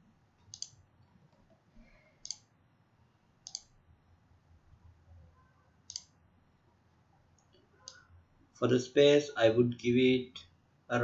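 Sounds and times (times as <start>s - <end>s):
faint room hiss: 0.0s - 11.0s
computer mouse clicks: 0.4s - 1.6s, 2.2s - 2.5s, 3.4s - 3.8s, 5.8s - 6.2s, 7.4s - 8.1s.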